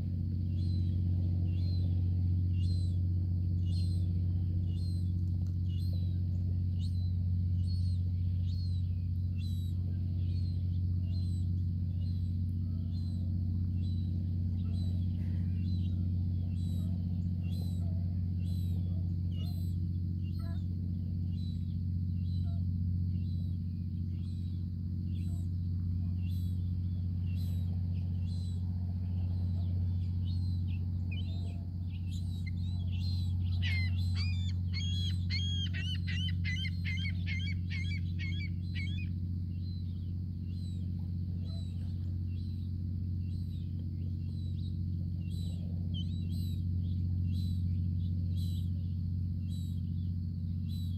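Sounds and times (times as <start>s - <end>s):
steady low hum: 0.0s - 50.9s
juvenile gull begging calls: 6.8s - 20.7s, 21.3s - 23.4s, 24.1s - 28.6s, 29.2s - 48.8s.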